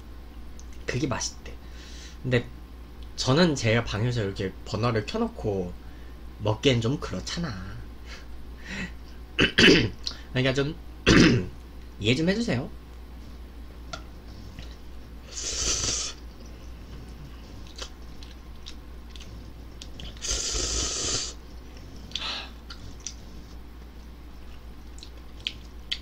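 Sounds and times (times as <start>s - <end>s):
soft chewing: 12.9s - 20.6s, 21.3s - 26.0s
noodles slurped: 14.6s - 23.6s.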